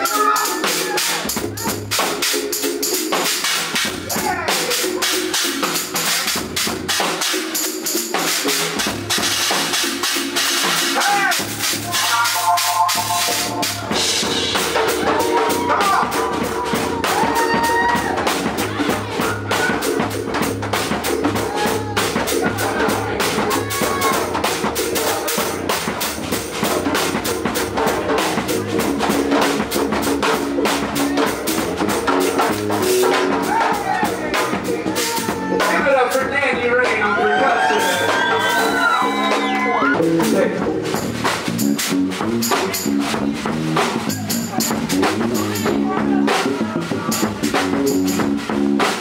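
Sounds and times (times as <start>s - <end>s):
drum kit played fast: 0.0s - 49.0s.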